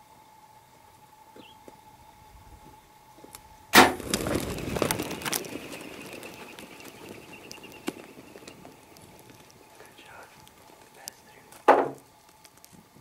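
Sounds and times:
hooves drumming on dry ground: 0:01.4 - 0:13.0
sudden loud crack: 0:03.7 - 0:04.4.

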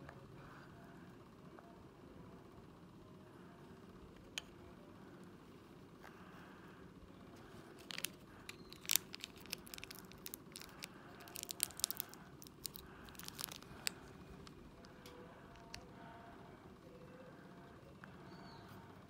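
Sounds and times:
wrapper crackling and tearing: 0:07.8 - 0:14.1.

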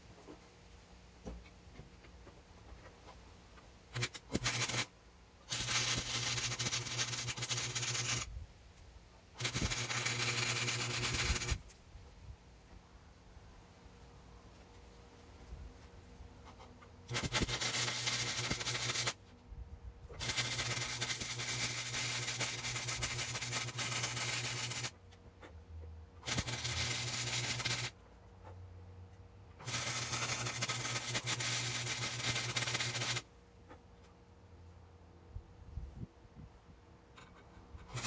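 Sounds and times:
welder arc crackling: 0:03.9 - 0:08.3, 0:09.4 - 0:11.8, 0:17.1 - 0:19.2, 0:20.1 - 0:25.0, 0:26.2 - 0:28.0, 0:29.6 - 0:33.3, 0:37.8 - 0:38.0
low welder hum: 0:03.9 - 0:08.6, 0:09.2 - 0:11.8, 0:16.4 - 0:25.5, 0:26.1 - 0:33.8, 0:37.2 - 0:38.0.

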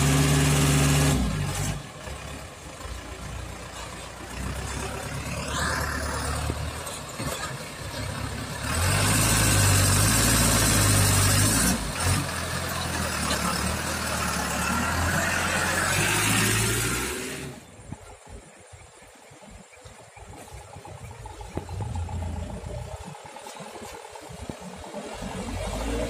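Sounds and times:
truck engine driving through mud: 0:00.0 - 0:18.5, 0:20.0 - 0:26.0.

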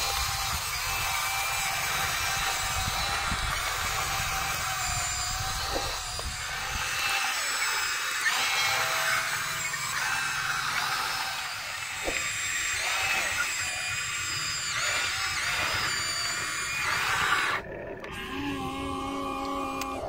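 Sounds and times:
small electric motors whining: 0:00.0 - 0:20.0.

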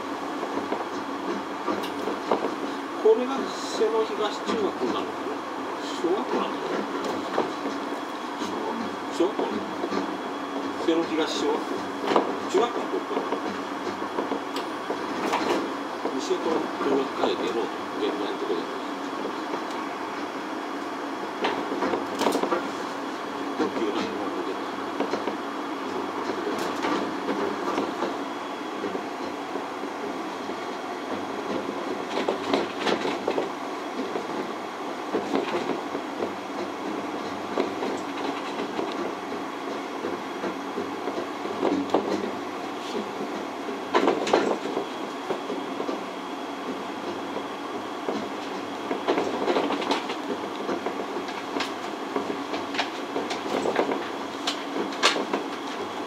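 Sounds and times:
transit car running rumble: 0:00.0 - 0:56.0
clacks and knocks: 0:00.4 - 0:02.6, 0:30.5 - 0:34.5, 0:35.1 - 0:56.0.

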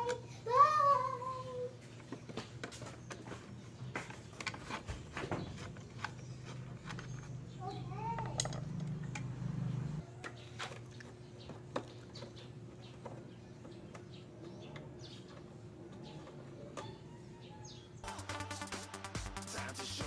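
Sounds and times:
birds chirping: 0:00.0 - 0:18.2
low hum: 0:05.8 - 0:10.0.

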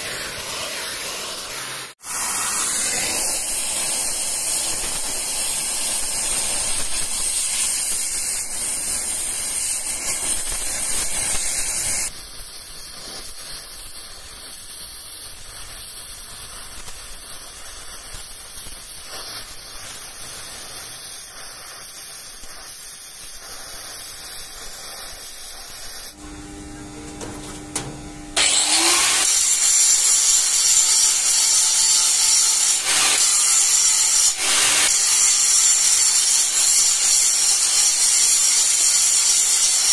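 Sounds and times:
angle grinder cutting steel: 0:00.0 - 0:21.4, 0:27.8 - 0:39.9
cutting torch hissing: 0:00.0 - 0:26.2, 0:27.8 - 0:39.9.

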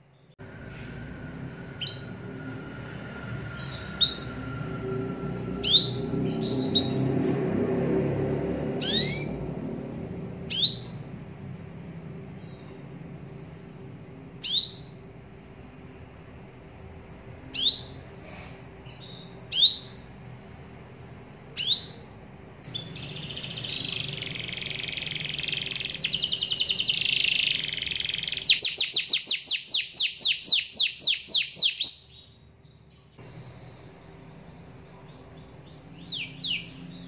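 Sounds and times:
canary singing: 0:01.6 - 0:07.2, 0:08.8 - 0:09.6, 0:10.4 - 0:11.2, 0:12.3 - 0:13.1, 0:14.3 - 0:15.2, 0:16.9 - 0:18.2, 0:18.8 - 0:20.2, 0:21.4 - 0:37.0.

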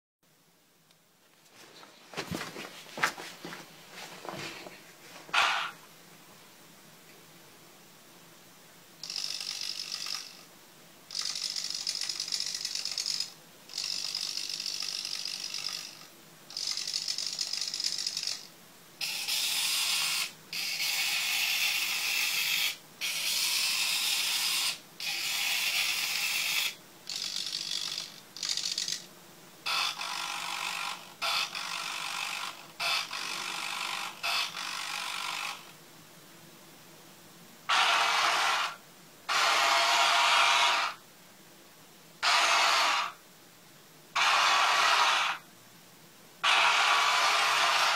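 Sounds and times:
small electric motors whirring: 0:09.0 - 0:10.4, 0:11.1 - 0:29.0, 0:29.7 - 0:35.7, 0:37.7 - 0:41.0, 0:42.2 - 0:43.2, 0:44.2 - 0:45.4, 0:46.4 - 0:47.9.

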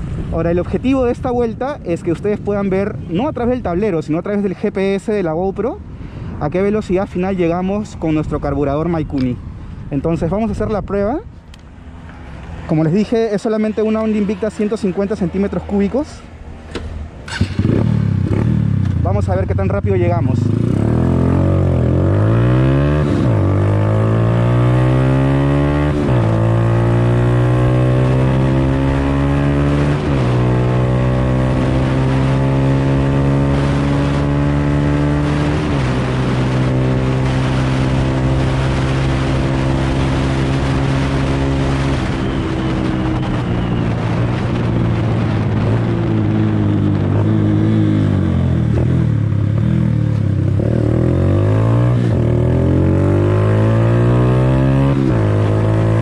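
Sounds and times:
wind rushing: 0:04.9 - 0:56.0
motorcycle engine revving: 0:16.7 - 0:56.0.

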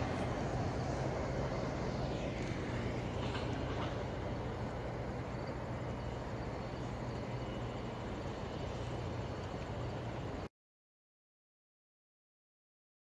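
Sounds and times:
low engine drone: 0:00.0 - 0:10.5.

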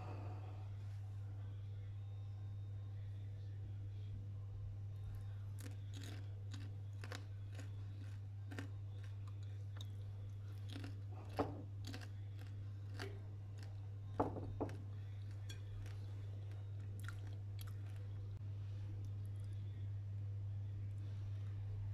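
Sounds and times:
low hum: 0:00.0 - 0:21.9
popcorn crunching: 0:05.2 - 0:18.3.

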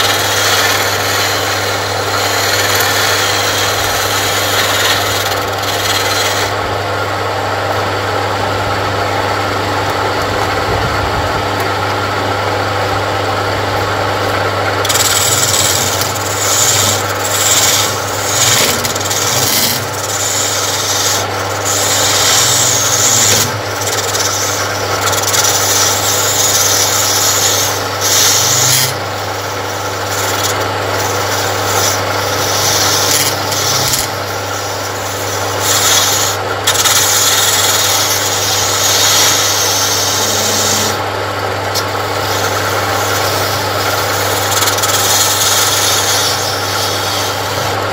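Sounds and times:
chisel scraping spinning wood: 0:00.0 - 0:47.9
electric motor hum: 0:00.0 - 0:47.9.

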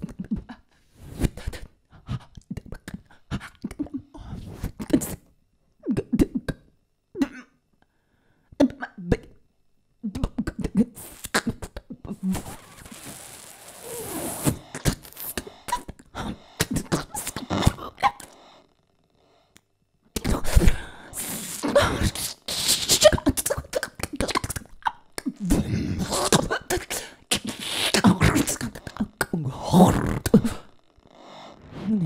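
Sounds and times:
guttural vocal bursts: 0:12.2 - 0:18.6, 0:20.4 - 0:24.6, 0:25.4 - 0:32.0
long hissing voice: 0:20.3 - 0:24.4, 0:25.5 - 0:32.0.

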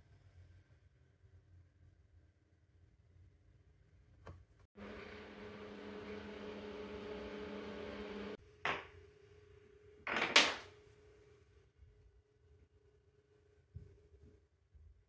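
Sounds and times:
pottery wheel motor humming: 0:04.8 - 0:08.4.

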